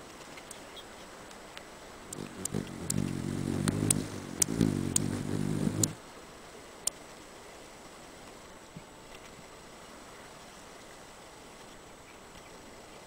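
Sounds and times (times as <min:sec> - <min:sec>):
hummingbird wings humming: 0:01.9 - 0:06.0.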